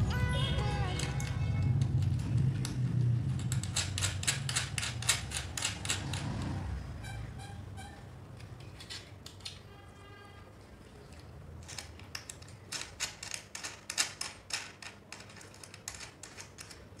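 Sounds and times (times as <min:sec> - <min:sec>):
spanner clicking on bolts: 0:01.0 - 0:06.3.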